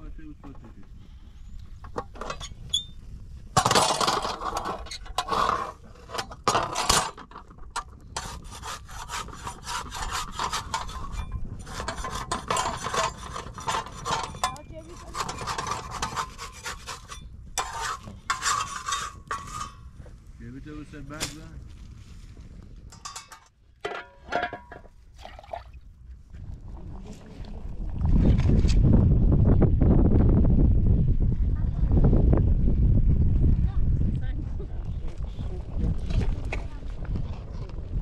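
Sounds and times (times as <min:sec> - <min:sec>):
wooden stick scraping griddle: 0:03.6 - 0:20.2.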